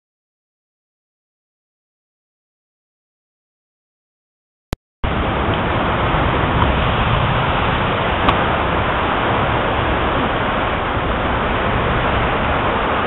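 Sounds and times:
heavy rain pouring: 5.0 - 13.0.

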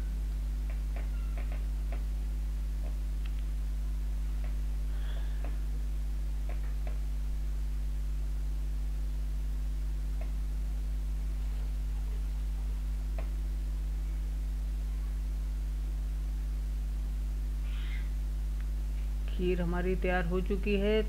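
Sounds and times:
low electrical mains hum: 0.0 - 21.0.

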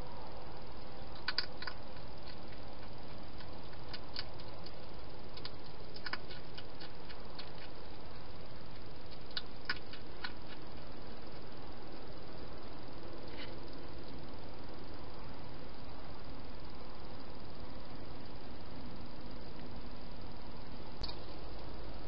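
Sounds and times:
steady hiss: 0.0 - 22.0
hedgehog eating crunches: 0.8 - 11.6.

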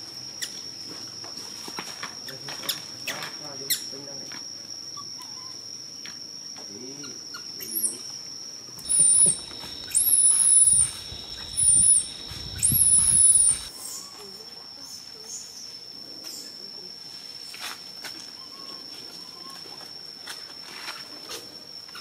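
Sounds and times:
steady high whine: 8.7 - 13.8
infant monkey screaming: 8.9 - 14.0.

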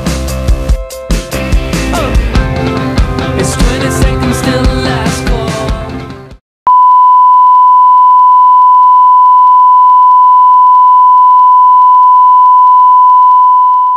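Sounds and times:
steady test tone beep: 6.7 - 13.9.

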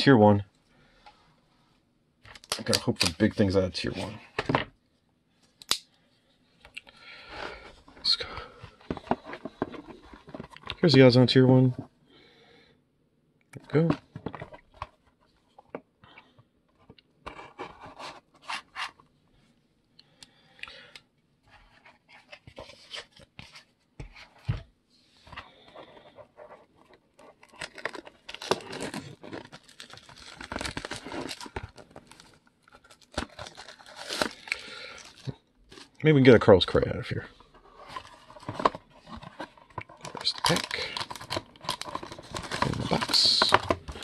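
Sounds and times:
plastic shrink wrap tearing: 40.2 - 43.5.

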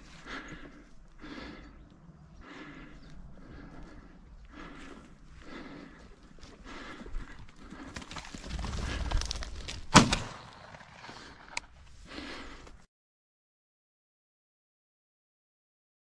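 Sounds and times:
footsteps crunching through stubble: 1.9 - 12.0
shotgun shot: 9.9 - 11.1.

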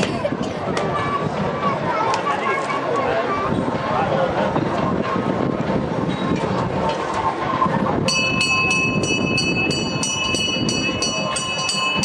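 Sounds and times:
murmur of crowd: 0.0 - 12.0
temple bell rung rapidly: 8.0 - 12.0.

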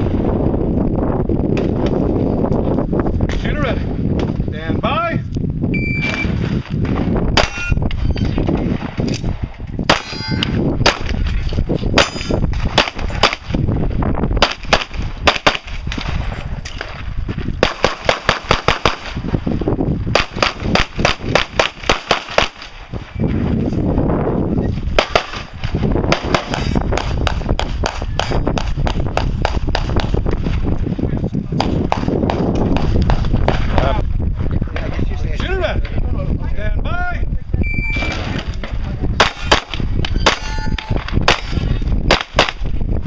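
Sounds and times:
pistol shots: 6.1 - 7.7, 8.6 - 10.2, 12.0 - 13.6, 14.4 - 16.2, 17.6 - 19.2, 20.1 - 22.8, 25.0 - 30.2, 41.2 - 42.6.

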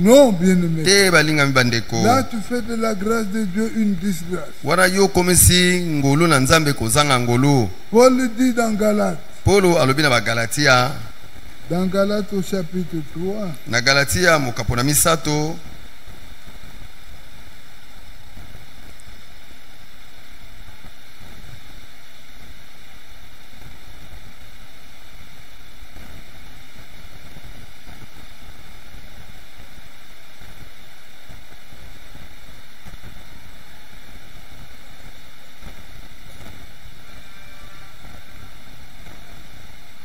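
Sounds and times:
air buffeting microphone: 0.0 - 16.0.

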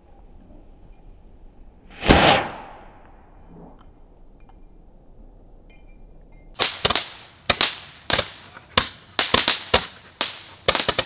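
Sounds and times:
fireworks cracking: 6.6 - 11.0.

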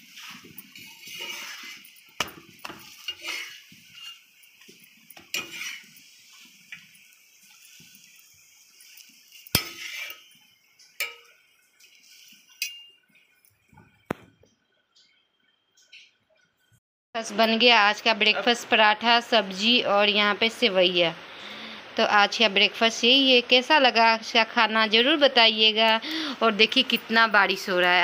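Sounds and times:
spatula clattering on metal cookware: 0.2 - 6.0, 9.3 - 10.3, 10.9 - 11.5, 12.5 - 13.0.

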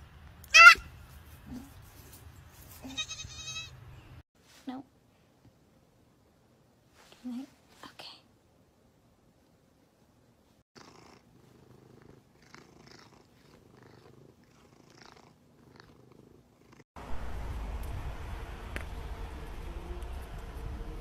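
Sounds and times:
cat purring: 10.8 - 16.8
loud steady outdoor noise: 17.0 - 21.0.

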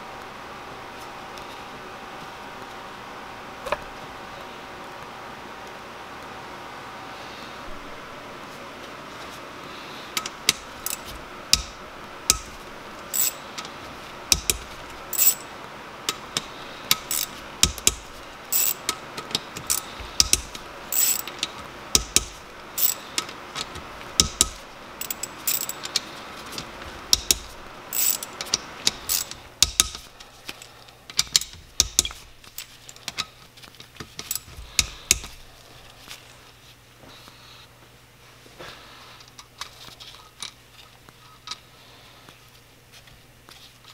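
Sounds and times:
ratchet wrench clicking: 10.2 - 12.5, 13.1 - 13.4, 14.3 - 15.4, 16.1 - 23.3, 24.2 - 26.1, 27.1 - 30.0, 31.2 - 32.7
small metal clinks: 13.1 - 13.4, 15.2 - 15.5, 17.0 - 19.0, 19.7 - 21.3, 24.2 - 26.0, 34.2 - 34.5.

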